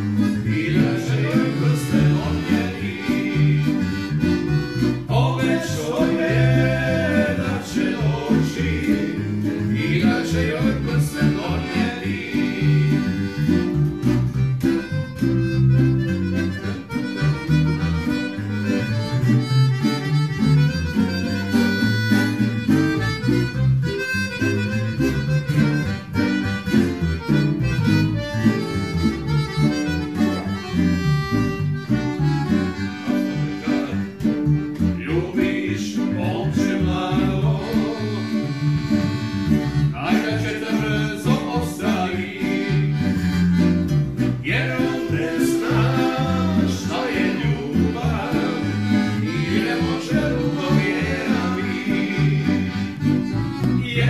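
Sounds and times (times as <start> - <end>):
men singing: 0.0 - 4.3, 5.0 - 13.7, 34.8 - 38.6, 39.9 - 43.4, 44.4 - 53.0, 53.8 - 54.0
acoustic guitar: 0.0 - 54.0
electric bass: 0.0 - 54.0
piano accordion: 0.0 - 54.0.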